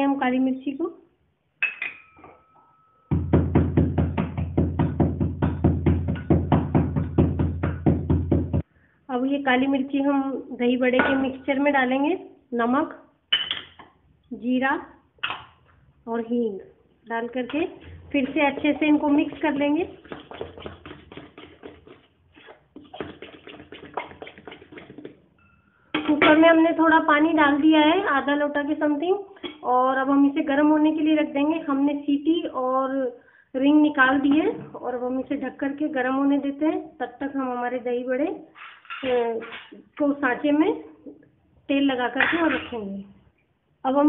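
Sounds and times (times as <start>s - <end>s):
pestle pounding in steel cup: 3.1s - 8.6s, 18.2s - 22.1s.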